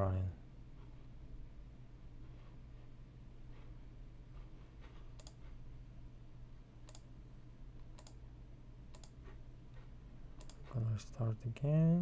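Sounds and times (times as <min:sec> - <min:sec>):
low steady hum: 0:00.0 - 0:12.0
faint sharp clicks: 0:06.8 - 0:07.1, 0:08.9 - 0:09.2.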